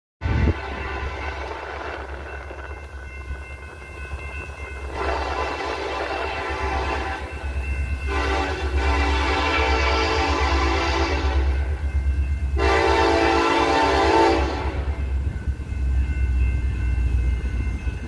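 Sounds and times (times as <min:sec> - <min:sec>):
locomotive air horn: 0:04.9 - 0:07.3, 0:08.1 - 0:11.8, 0:12.6 - 0:15.0.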